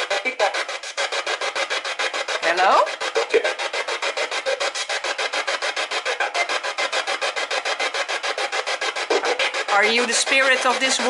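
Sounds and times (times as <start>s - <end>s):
radio static pulsing: 2.4s - 7.2s, 8.9s - 11.0s.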